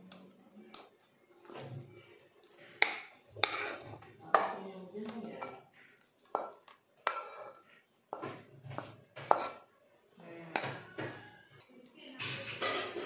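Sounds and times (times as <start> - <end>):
steel spoon clinking on pan: 6.3 - 8.2.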